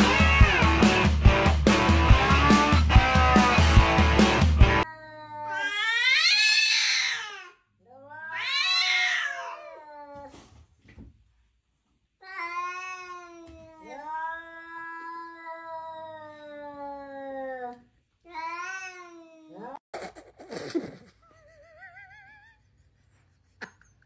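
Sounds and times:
cats yowling: 0.0 - 0.9, 4.8 - 10.4, 12.4 - 19.8.

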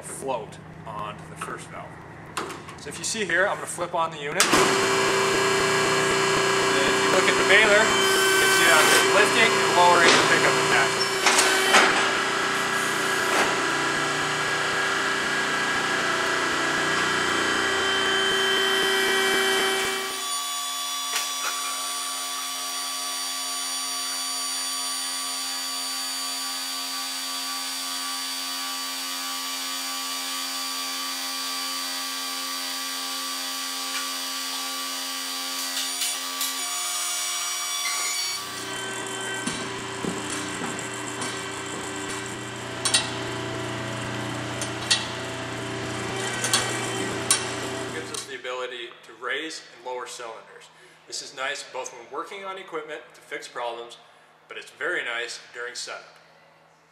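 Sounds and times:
hydraulic power unit humming: 4.3 - 23.0, 37.6 - 48.3.

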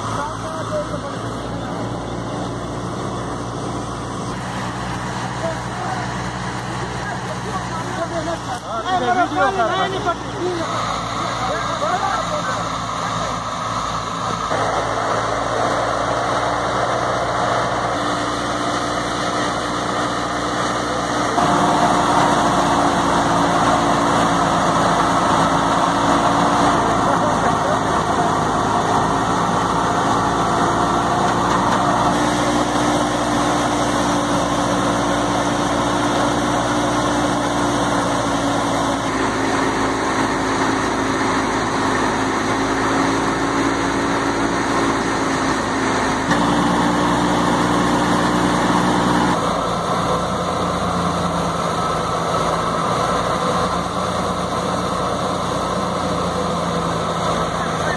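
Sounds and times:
tractor machine drone: 0.0 - 57.9.

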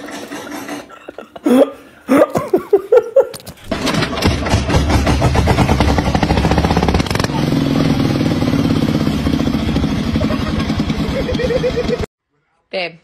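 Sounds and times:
people laughing: 10.1 - 12.1.

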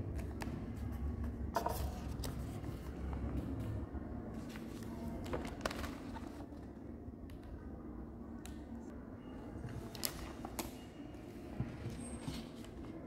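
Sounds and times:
paper pages turning: 4.4 - 6.6.

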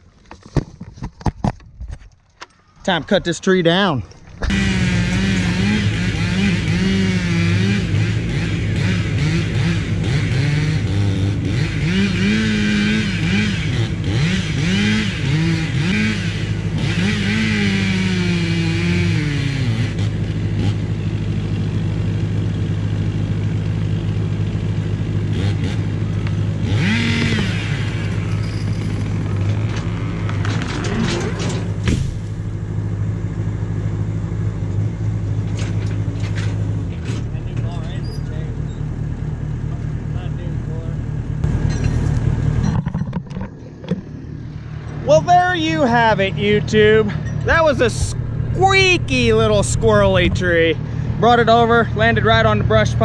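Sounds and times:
chainsaw cutting wood: 4.2 - 21.0, 25.3 - 32.4
tree trunk falling with thump: 31.8 - 32.5.

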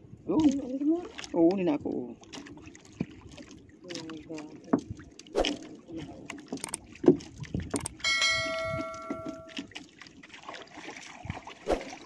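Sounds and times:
bell-like chime: 8.0 - 9.6.

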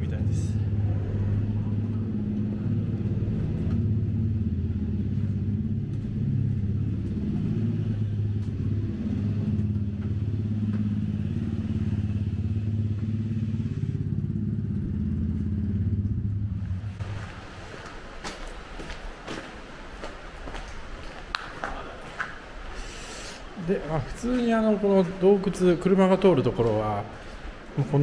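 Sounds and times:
motorcycle engines idling: 0.0 - 18.8.

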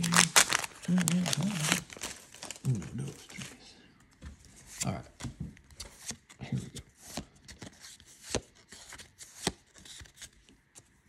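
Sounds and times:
cards slapping and rustling: 4.6 - 11.0.

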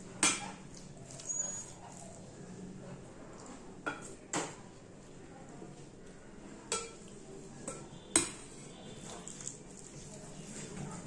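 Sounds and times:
metal spoon clinking against bowl: 6.7 - 8.4.

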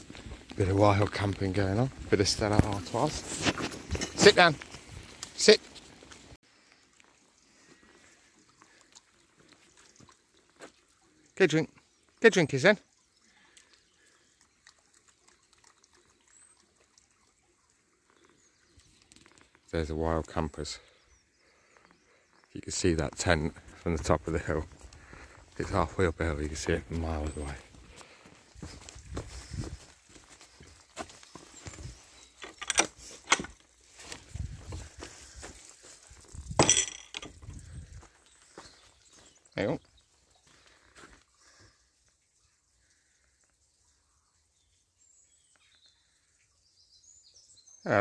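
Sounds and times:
footsteps on dirt and grass: 0.0 - 6.4, 23.2 - 39.4
faint stream trickling: 0.0 - 48.0
soft splashes: 5.1 - 19.7.

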